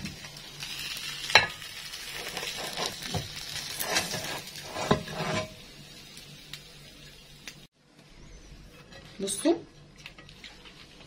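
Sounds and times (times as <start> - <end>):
faint sizzle from hot pan: 0.0 - 7.7
frying pan scraping on plate: 1.4 - 5.6.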